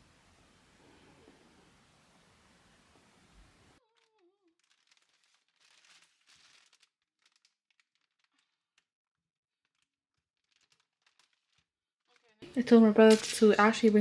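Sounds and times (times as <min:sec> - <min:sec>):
wrapping crinkling and rustling: 0:03.8 - 0:14.0.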